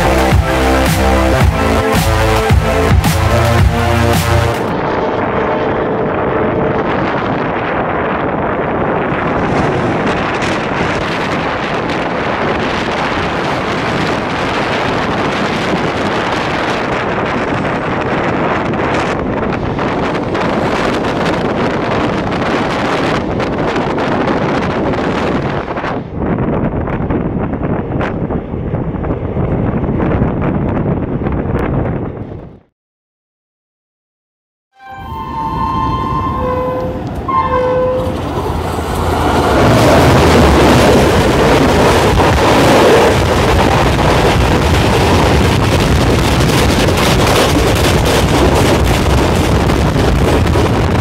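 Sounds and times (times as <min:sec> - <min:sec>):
passing train rushing and rattling: 0:00.0 - 0:32.6, 0:34.8 - 0:51.0
wind buffeting microphone: 0:04.7 - 0:32.7, 0:35.4 - 0:51.0
train horn blasts: 0:34.7 - 0:38.6
trains rushing past: 0:34.8 - 0:51.0.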